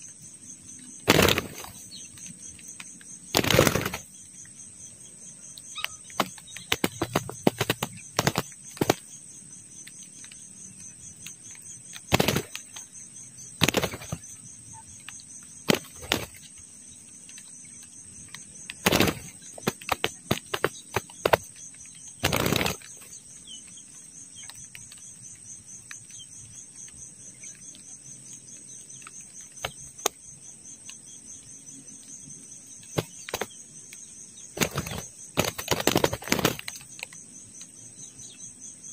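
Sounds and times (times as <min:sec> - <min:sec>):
high insect buzz: 0:00.0 - 0:38.9
wings flapping: 0:01.0 - 0:04.2, 0:05.8 - 0:09.2, 0:11.2 - 0:13.0, 0:13.6 - 0:14.4, 0:15.0 - 0:16.7, 0:18.3 - 0:23.8, 0:29.0 - 0:30.2, 0:32.8 - 0:33.6, 0:34.4 - 0:37.2.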